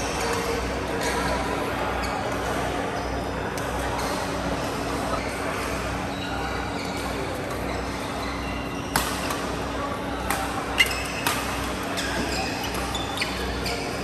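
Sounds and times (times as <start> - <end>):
shoe squeaks: 6.1 - 7.0, 10.8 - 11.2, 11.9 - 14.0.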